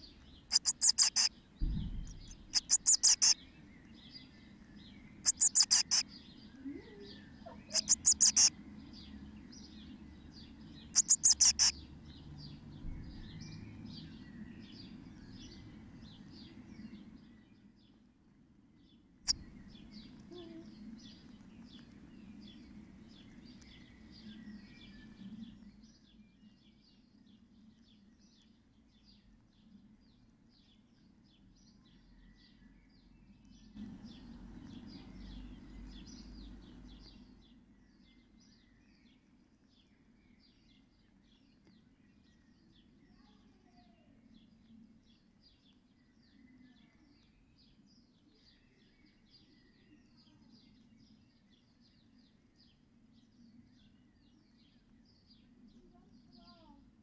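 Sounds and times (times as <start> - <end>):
loud trilling bird calls: 0.0 - 3.5, 5.2 - 8.5, 10.8 - 11.9
nestlings chirping: 0.0 - 12.6, 19.3 - 25.7.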